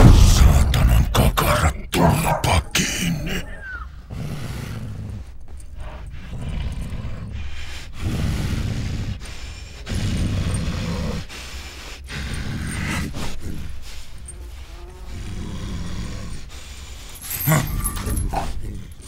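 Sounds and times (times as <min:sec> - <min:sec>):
deep rough rumbling: 0:00.0 - 0:02.5.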